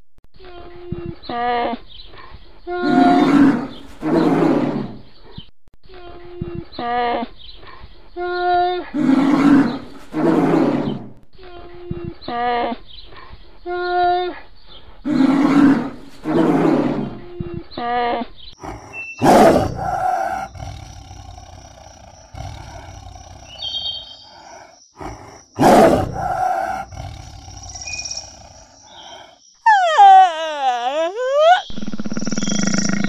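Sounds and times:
big cat growls and roars: 0:02.2 - 0:05.5, 0:08.8 - 0:11.2, 0:15.0 - 0:30.2, 0:31.6 - 0:33.0
long animal call: 0:02.7 - 0:03.6, 0:17.8 - 0:33.0.

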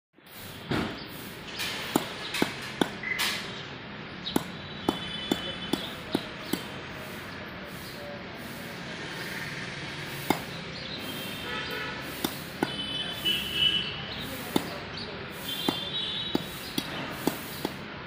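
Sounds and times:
knife chopping fish on wooden block: 0:01.9 - 0:03.0, 0:04.4 - 0:06.7, 0:10.2 - 0:10.5, 0:12.2 - 0:12.8, 0:14.5 - 0:14.7.

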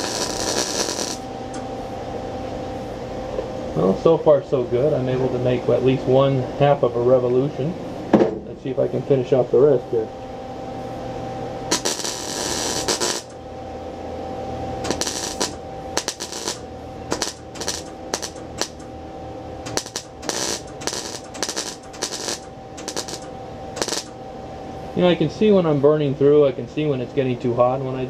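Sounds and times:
welder arc crackling: 0:00.0 - 0:01.6, 0:11.6 - 0:13.5, 0:14.8 - 0:18.9, 0:19.6 - 0:24.2.

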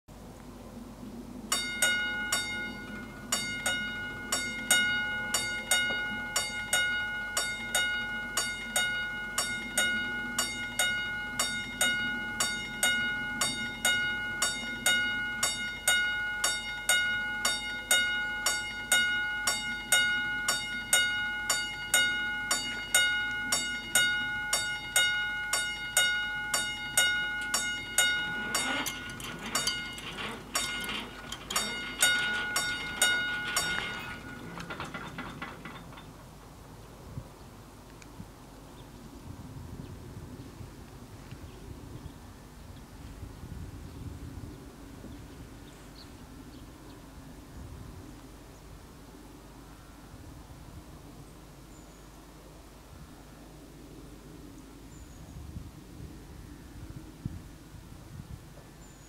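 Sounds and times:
level crossing warning bells: 0:01.5 - 0:36.4
barrier motor whirring: 0:27.4 - 0:35.2.

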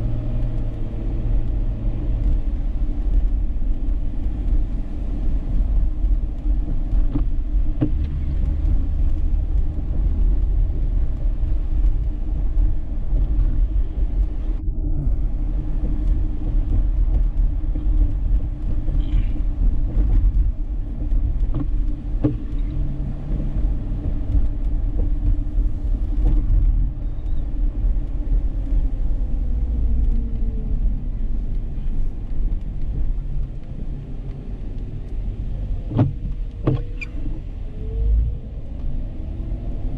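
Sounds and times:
car engine rumble: 0:00.0 - 0:39.9
faint clicks and knocks: 0:15.8 - 0:28.9.

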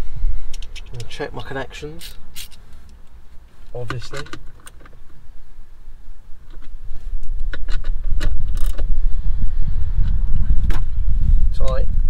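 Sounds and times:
socket wrench clicks: 0:02.0 - 0:02.6
loud low rumble: 0:08.0 - 0:12.0.

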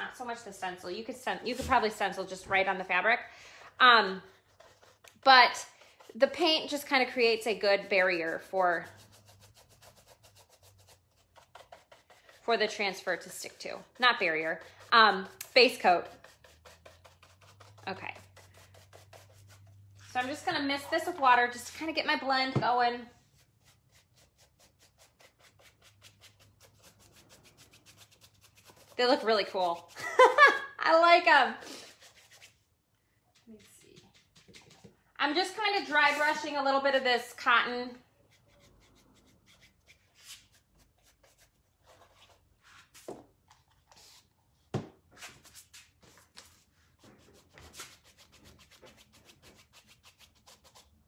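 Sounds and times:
paintbrush scrubbing on fabric: 0:04.1 - 0:21.2, 0:23.2 - 0:30.4.

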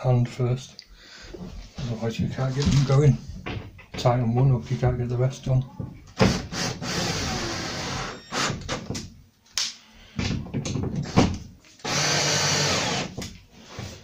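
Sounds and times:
cordless drill driving screws: 0:06.2 - 0:08.6, 0:11.8 - 0:13.1.

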